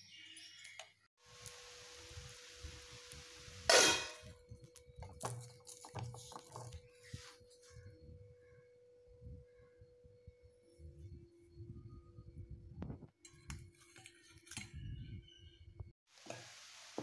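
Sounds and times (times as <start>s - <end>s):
gas stove hiss: 1.2s - 4.3s, 16.1s - 17.0s
metal cookware clanking: 3.7s - 4.4s.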